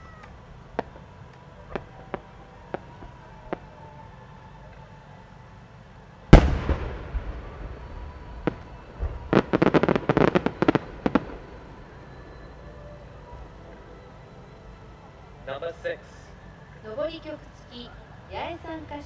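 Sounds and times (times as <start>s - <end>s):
firework shell boom: 6.3s - 11.2s
rapid firework crackling: 6.3s - 11.9s.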